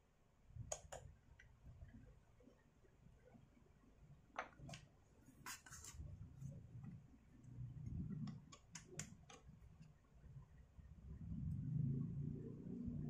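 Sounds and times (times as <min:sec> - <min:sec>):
plastic parts clicking and tapping: 0:08.1 - 0:10.0.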